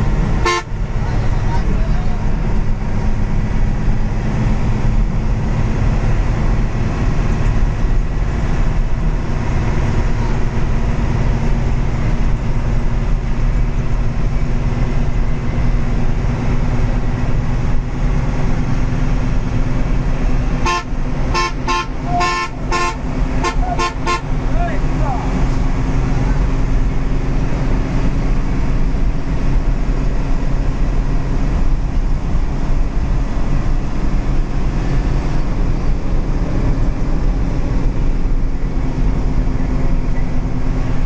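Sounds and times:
coach engine and road noise: 0:00.0 - 0:41.0
short horn toots: 0:00.4 - 0:00.7, 0:20.6 - 0:24.3.

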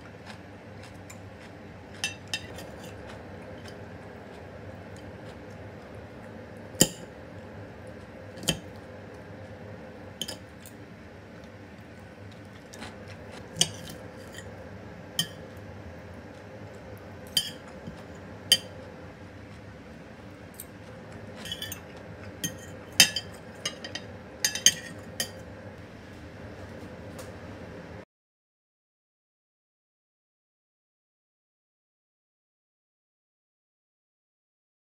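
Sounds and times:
faint room hum: 0:00.0 - 0:28.1
cutlery clinking on plate: 0:10.2 - 0:10.4, 0:17.3 - 0:18.7, 0:21.4 - 0:25.4.

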